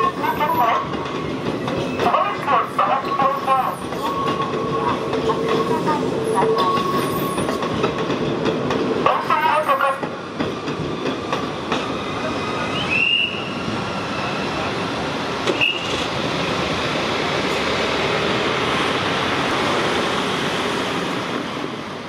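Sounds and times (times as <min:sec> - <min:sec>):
train wheels rumbling on track: 0:00.0 - 0:22.0
high wheel squeals: 0:03.7 - 0:07.6.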